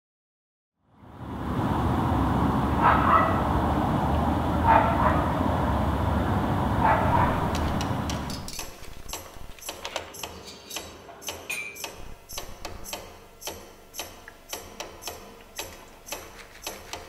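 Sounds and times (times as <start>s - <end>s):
low outdoor rumble: 0.8s - 9.6s
dog barking: 2.8s - 3.5s, 4.6s - 5.4s, 6.8s - 7.7s
sharp clicks and taps: 7.5s - 17.0s.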